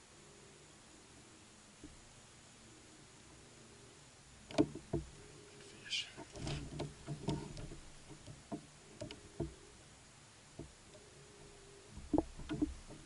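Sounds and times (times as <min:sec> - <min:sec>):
fishing gear knocking and clicking: 0:06.3 - 0:09.6, 0:12.0 - 0:13.0.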